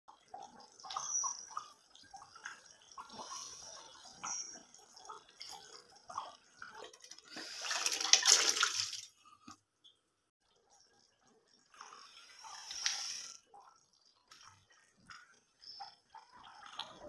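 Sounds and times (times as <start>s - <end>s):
wet sloshing pour: 0.8s - 9.6s.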